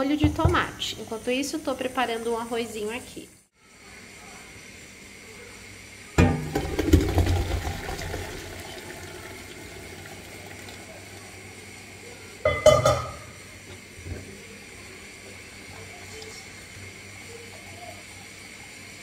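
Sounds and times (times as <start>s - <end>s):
water flowing in sink: 0.0s - 3.0s, 6.2s - 19.0s
metal pot clank: 6.2s - 7.0s, 12.4s - 13.4s.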